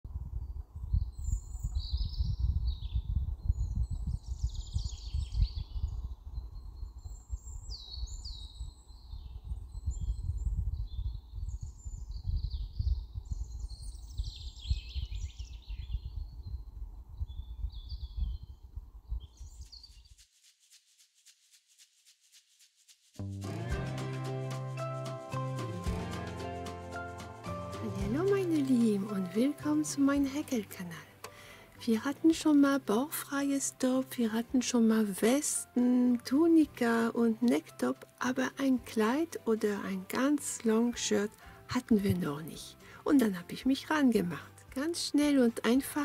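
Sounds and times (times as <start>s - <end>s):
small birds chirping: 0.9s - 20.2s.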